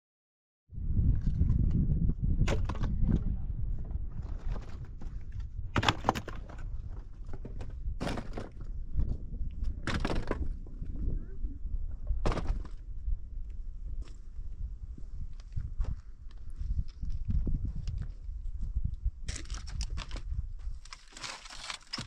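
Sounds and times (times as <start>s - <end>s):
low rumble: 6.5s - 20.6s.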